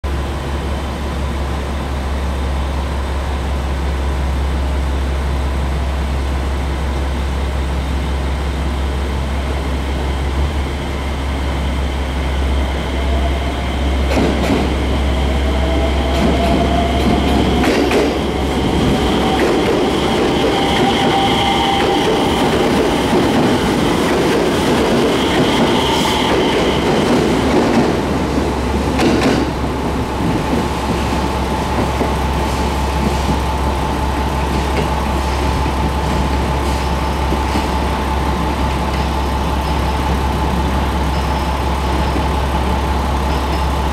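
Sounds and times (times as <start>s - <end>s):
electric train low hum: 0.0s - 43.9s
wheels clacking over rail joints: 16.0s - 31.2s.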